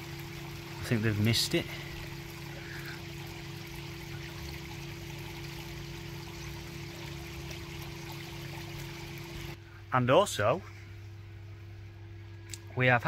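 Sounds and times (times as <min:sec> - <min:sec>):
water trickling into pond: 0:00.0 - 0:09.6
steady low hum: 0:00.0 - 0:13.0.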